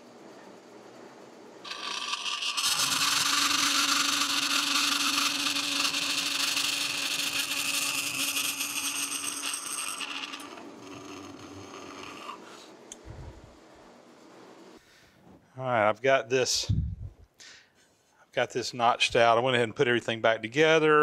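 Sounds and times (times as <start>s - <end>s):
bandsaw cutting metal: 1.6s - 12.6s
low hum: 10.3s - 14.8s, 16.6s - 17.4s.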